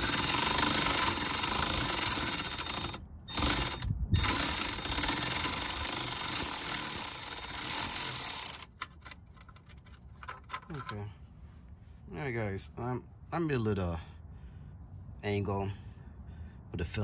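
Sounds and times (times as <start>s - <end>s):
electric ratchet whining: 0.0s - 8.8s.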